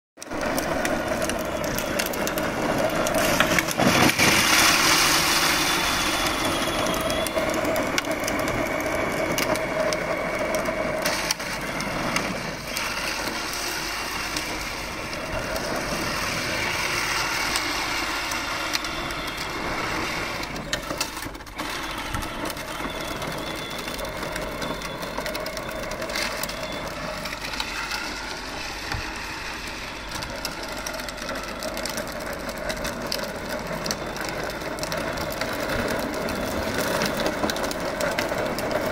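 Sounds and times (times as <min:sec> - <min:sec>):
plastic wheels rumbling on concrete: 0:00.2 - 0:38.9
toy tractor electric motor: 0:00.2 - 0:38.9.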